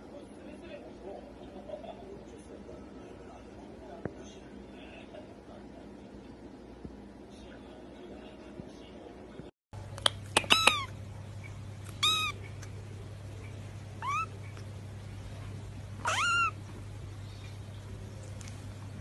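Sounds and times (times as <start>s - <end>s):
kitten mewing: 10.3s - 11.0s, 11.9s - 12.6s, 14.0s - 14.6s, 16.0s - 16.7s.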